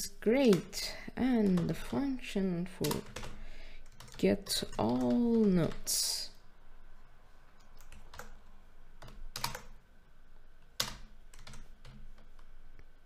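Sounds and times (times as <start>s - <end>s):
computer keyboard typing: 0.4s - 2.1s, 2.8s - 6.0s, 7.7s - 8.4s, 9.0s - 9.8s, 10.8s - 12.5s.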